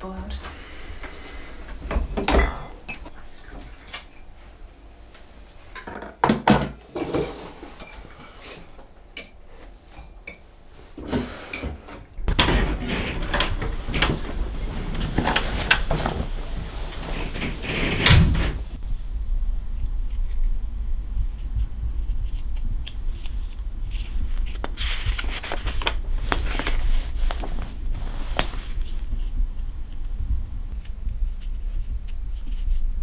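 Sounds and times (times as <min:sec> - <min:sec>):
things being moved: 0:00.3 - 0:04.6, 0:05.5 - 0:18.8
low rumble: 0:12.2 - 0:25.2, 0:25.8 - 0:33.0.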